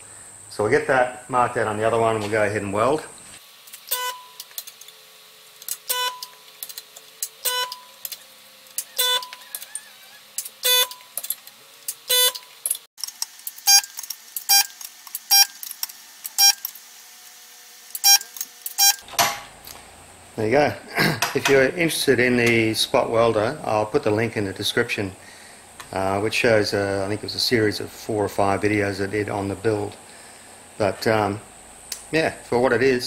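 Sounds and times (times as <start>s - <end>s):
spot welder buzzing and clicking: 3.3s - 20.0s, 31.8s - 32.6s.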